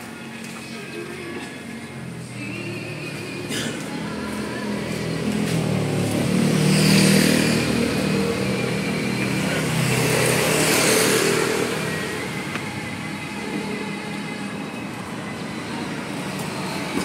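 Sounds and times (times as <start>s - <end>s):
vehicles passing: 0.0s - 17.0s.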